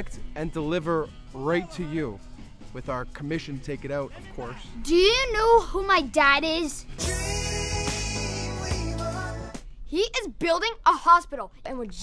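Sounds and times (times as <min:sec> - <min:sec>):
held chord with deep bass: 0:07.0 - 0:09.6.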